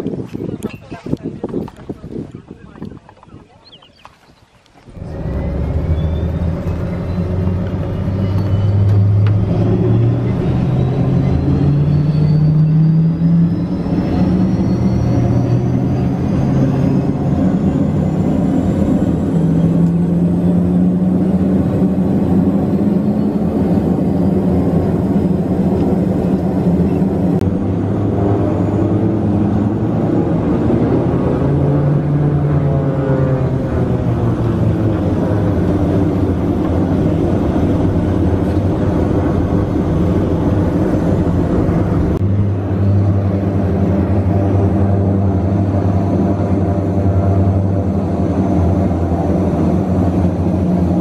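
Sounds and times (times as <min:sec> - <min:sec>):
turboprop propeller drone: 0:04.9 - 0:51.0.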